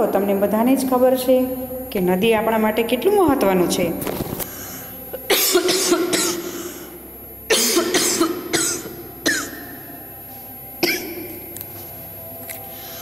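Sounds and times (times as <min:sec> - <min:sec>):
person coughing: 0:05.2 - 0:06.6, 0:07.5 - 0:09.6, 0:10.8 - 0:11.2.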